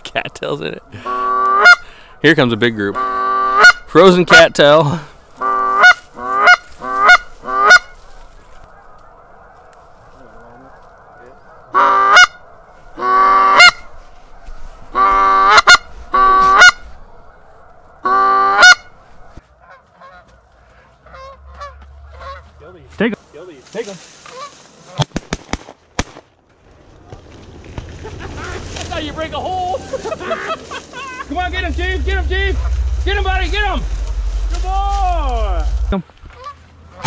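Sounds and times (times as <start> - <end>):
distant flock of geese honking: 0.6 - 2.2, 2.8 - 4.1, 5.0 - 22.8, 24.1 - 25.0, 29.7 - 34.6, 35.4 - 37.0
goose call honks: 1.0 - 1.9, 2.9 - 3.9, 5.4 - 8.0, 8.7 - 13.9, 14.9 - 19.0, 19.6 - 22.5.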